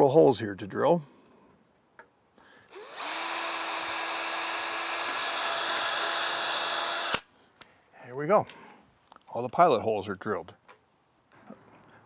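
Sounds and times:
cordless drill drilling metal: 2.7 - 7.3.

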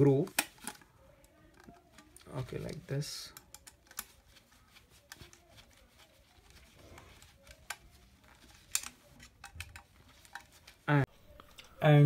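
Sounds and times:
screwdriver clicks and scrapes: 3.3 - 4.2, 7.2 - 10.7.

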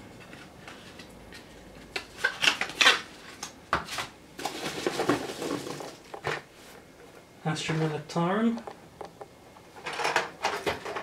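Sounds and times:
foam packing peanuts rustling: 3.9 - 6.1.

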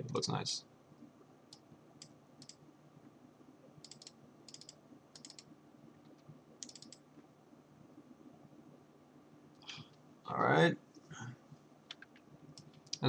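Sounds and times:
low steady hum: 0.0 - 13.0
computer mouse clicks: 1.5 - 2.6, 3.8 - 7.0, 11.9 - 13.0.

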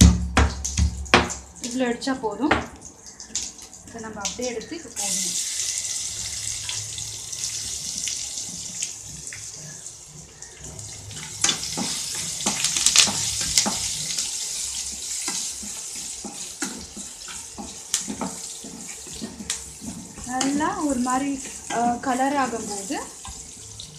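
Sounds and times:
garlic sizzling in hot oil: 3.9 - 23.9
wooden spatula scraping pan: 14.9 - 22.8.

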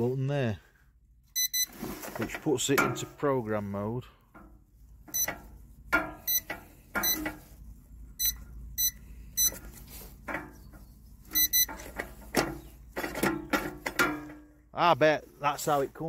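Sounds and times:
short high keypad beeps: 1.4 - 1.7, 7.0 - 7.2, 8.2 - 9.6, 11.4 - 11.7.

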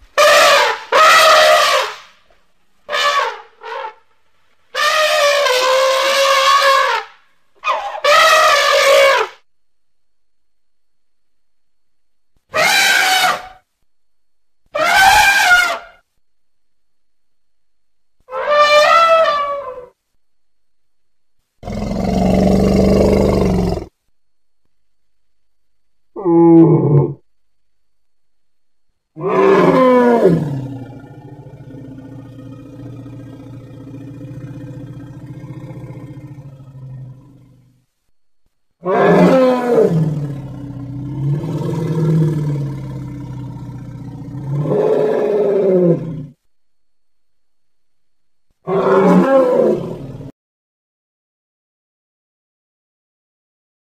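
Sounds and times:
elephant trumpeting: 0.2 - 2.1, 2.9 - 4.0, 4.7 - 9.4, 12.5 - 13.6, 14.8 - 16.0, 18.3 - 19.9, 29.2 - 37.6, 38.8 - 46.2, 48.7 - 50.0
elephant roaring: 21.6 - 23.9, 29.2 - 37.8, 38.8 - 46.4, 48.7 - 50.3.

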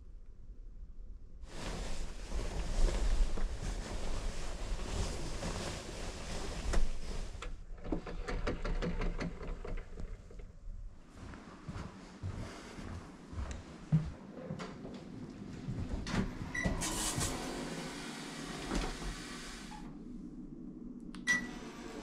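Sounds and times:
duvet rustling: 1.4 - 7.5, 11.0 - 14.1.

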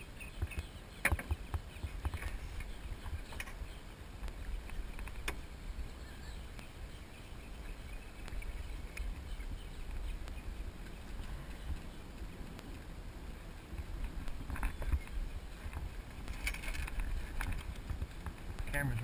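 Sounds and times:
water moving around boat: 0.0 - 19.0
wind rumble on microphone: 0.0 - 19.0
sharp clicks from boat: 0.3 - 3.6, 4.2 - 5.5, 13.7 - 19.0.

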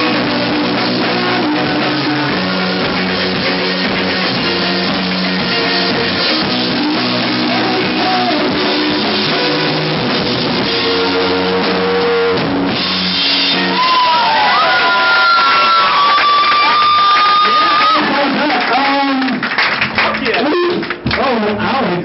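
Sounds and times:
drum kit with cymbals: 0.0 - 14.7
electric guitars: 0.0 - 22.0.

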